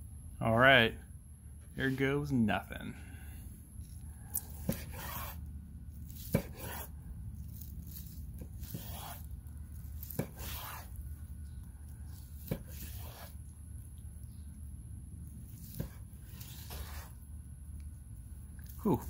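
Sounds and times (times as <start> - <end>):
knife slicing through steak: 4.3 - 5.4, 6.0 - 9.3, 9.9 - 11.0, 12.1 - 13.4, 15.5 - 17.2.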